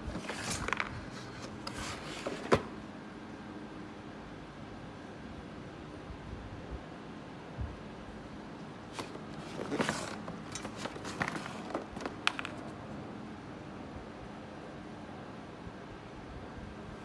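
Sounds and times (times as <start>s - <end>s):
rustling scrape: 0.0s - 2.6s, 8.9s - 12.2s
steady background hum: 0.0s - 17.0s.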